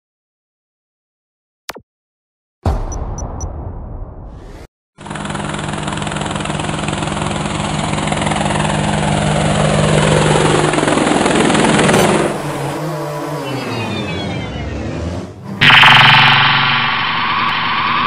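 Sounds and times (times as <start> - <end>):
drone propellers whirring: 4.4 - 18.0.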